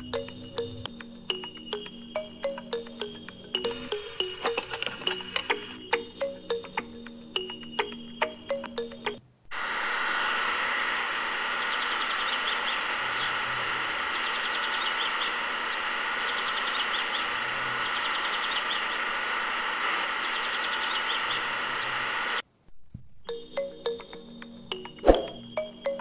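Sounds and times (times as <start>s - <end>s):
electric pump motor whining: 0.0s - 6.6s, 9.5s - 22.4s
clinking music jingle: 0.0s - 9.2s
birds chirping: 11.5s - 19.2s, 20.1s - 22.1s.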